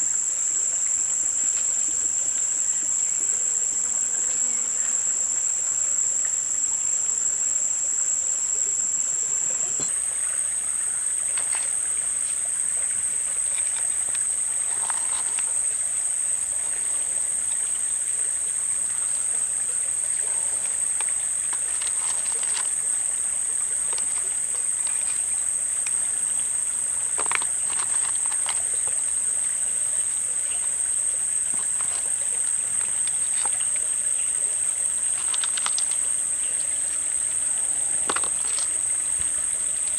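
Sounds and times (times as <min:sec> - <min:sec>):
high-pitched insect chorus: 0:00.0 - 0:39.9
rustles and light clicks: 0:09.9 - 0:17.1, 0:20.1 - 0:26.3, 0:27.1 - 0:29.2, 0:31.5 - 0:36.4, 0:37.9 - 0:39.9.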